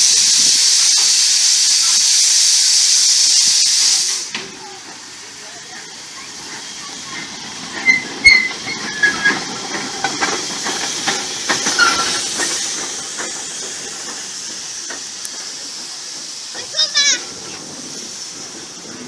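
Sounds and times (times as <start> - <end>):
steam locomotive hissing: 0.0 - 19.0
brief high squeaks: 11.8 - 12.2.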